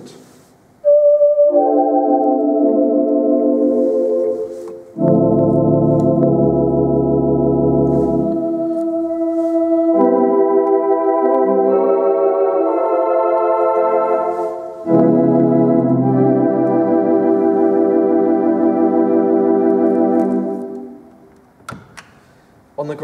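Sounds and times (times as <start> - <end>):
organ playing wavering chords: 0.8 - 21.3.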